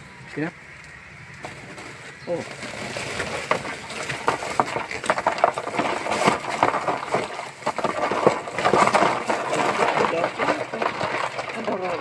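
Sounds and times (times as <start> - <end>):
crabs clicking on plastic: 2.8 - 12.0.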